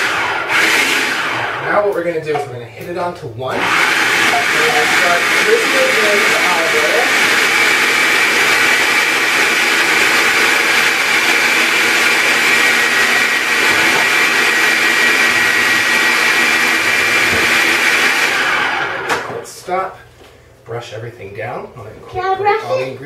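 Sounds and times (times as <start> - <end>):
food processor whirring: 0.0 - 2.2, 3.5 - 19.5.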